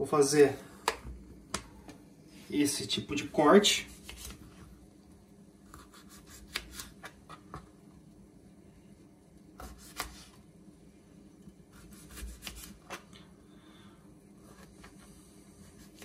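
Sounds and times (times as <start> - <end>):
knife cutting on plastic board: 5.7 - 7.5.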